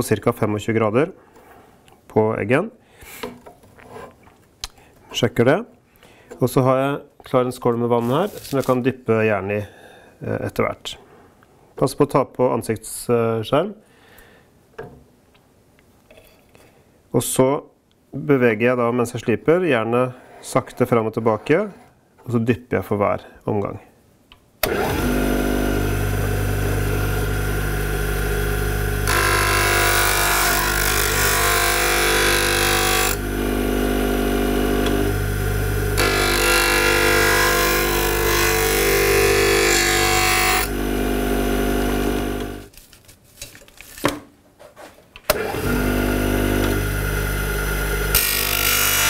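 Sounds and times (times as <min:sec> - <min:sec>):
bench grinder motor hum: 0:24.7 - 0:42.7, 0:45.3 - 0:49.0.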